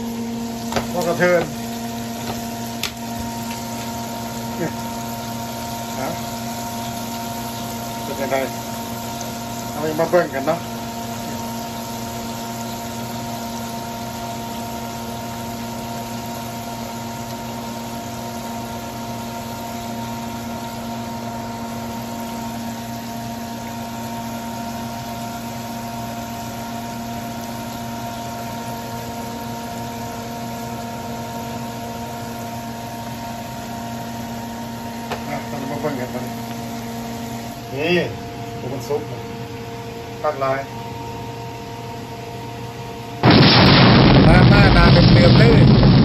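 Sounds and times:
chicken deep-frying in oil: 0:00.0 - 0:41.2, 0:41.8 - 0:46.0
constant hum: 0:42.2 - 0:46.0.

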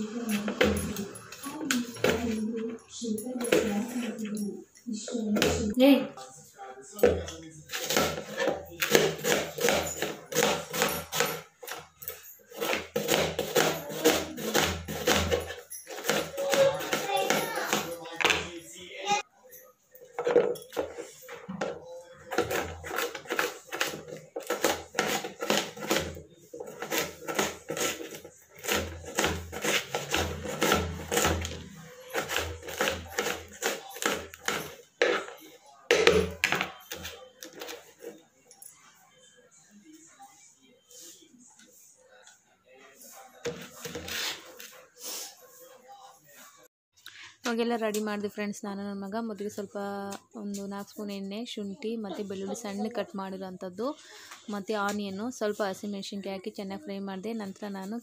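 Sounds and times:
knife chopping on cutting board: 0:07.7 - 0:11.3, 0:22.3 - 0:35.3.

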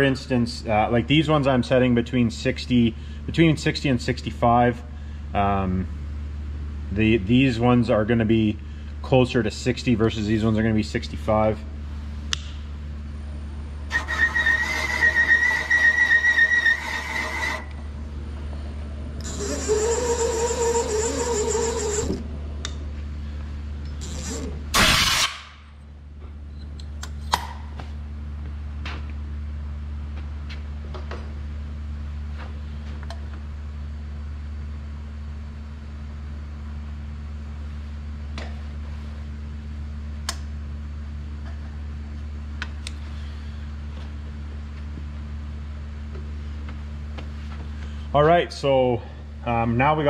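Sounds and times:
low machine hum: 0:00.0 - 0:50.0
valve seat cutter squealing: 0:13.9 - 0:17.7, 0:19.2 - 0:22.2
loud short burst of noise: 0:24.7 - 0:25.7.

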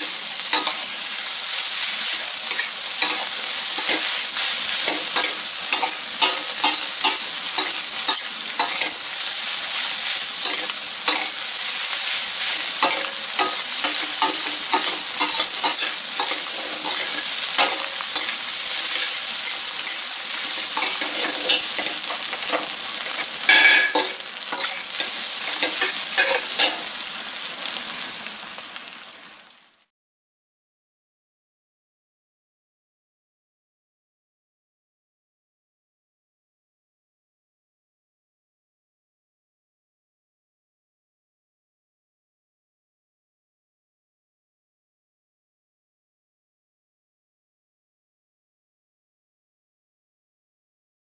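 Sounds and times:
metal spatula scraping wok: 0:00.0 - 0:27.1
rice sizzling in a wok: 0:00.0 - 0:29.9.

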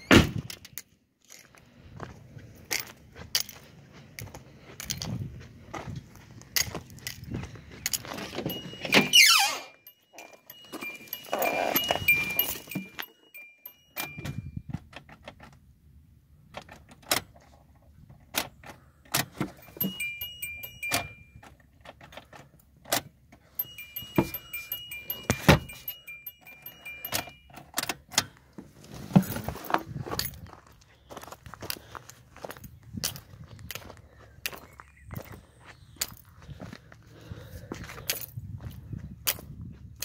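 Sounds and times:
keys jingling: 0:06.6 - 0:14.6, 0:19.4 - 0:22.4, 0:23.4 - 0:28.3
car warning chime beeps: 0:08.4 - 0:14.7, 0:19.5 - 0:21.6, 0:23.5 - 0:27.8.

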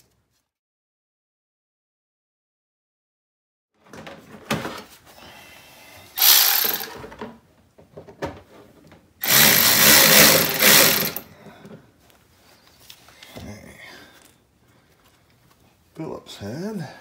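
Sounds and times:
cordless power driver running: 0:06.2 - 0:06.9, 0:09.2 - 0:11.3.

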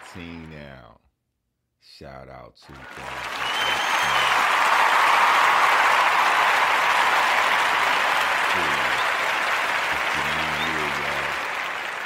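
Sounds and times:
crowd applause: 0:00.0 - 0:00.5, 0:02.7 - 0:12.0.

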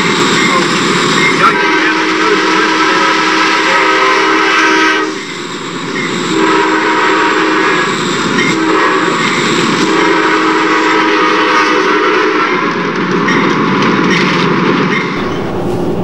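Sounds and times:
moving train rumble: 0:00.0 - 0:16.0
locomotive air horn blasts: 0:01.5 - 0:05.2, 0:06.2 - 0:12.8.

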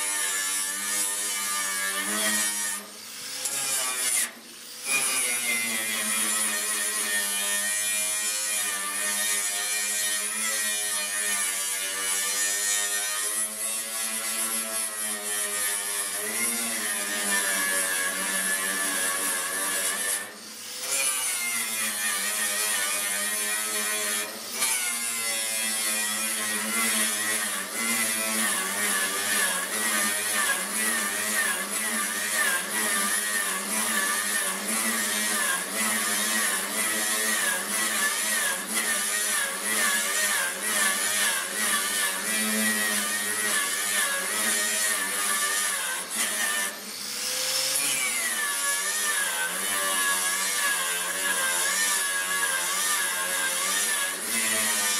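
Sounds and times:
angle grinder whine: 0:16.8 - 0:54.9.

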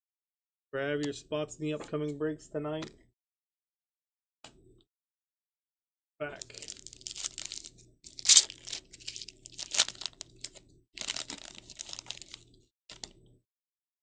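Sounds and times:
foil wrapper ripping: 0:06.4 - 0:12.4
foil wrapper crinkling: 0:06.4 - 0:13.1.

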